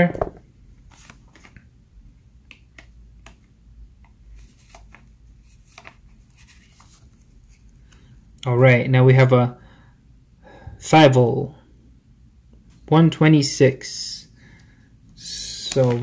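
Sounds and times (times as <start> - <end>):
trading cards clicking and rustling: 4.3 - 8.1, 15.6 - 16.0.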